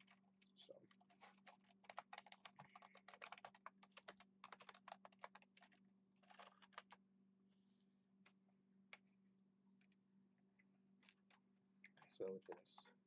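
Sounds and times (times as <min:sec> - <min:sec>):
computer keyboard typing: 0:00.0 - 0:00.2, 0:00.9 - 0:07.0.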